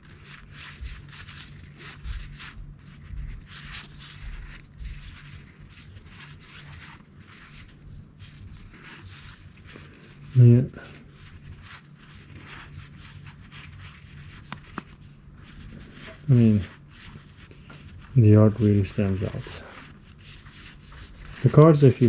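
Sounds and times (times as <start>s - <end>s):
cards sliding and flicking: 12.0s - 17.9s.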